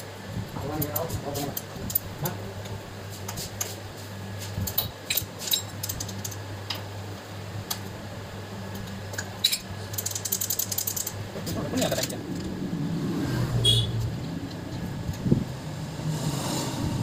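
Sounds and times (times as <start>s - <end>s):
steady low hum: 0.0s - 17.0s
metal tools clinking: 9.4s - 11.2s.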